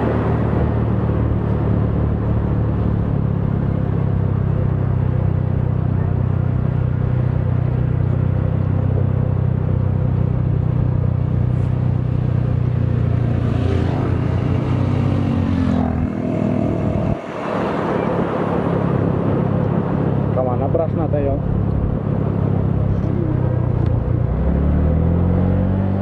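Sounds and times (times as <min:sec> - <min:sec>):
motorcycle engine running: 0:01.0 - 0:17.2.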